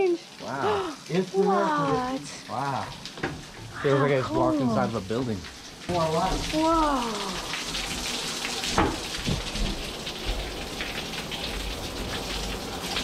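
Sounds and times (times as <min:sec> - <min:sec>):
water splashing down rock: 0:05.9 - 0:11.7.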